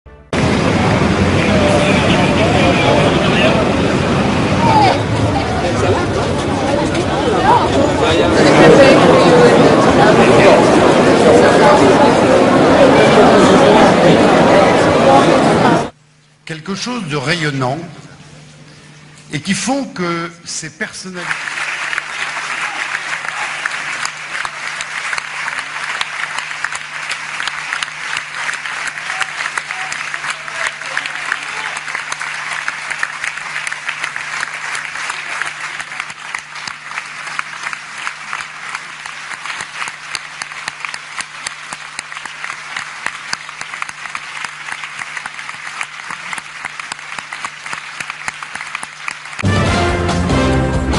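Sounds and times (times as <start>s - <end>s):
low hum: 0.1s - 16.4s
crowd applauding: 0.3s - 16.0s, 21.0s - 50.9s.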